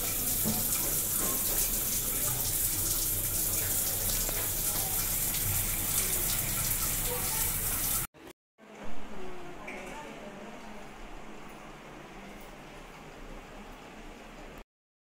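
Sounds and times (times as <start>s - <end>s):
water running from tap: 0.0s - 8.1s.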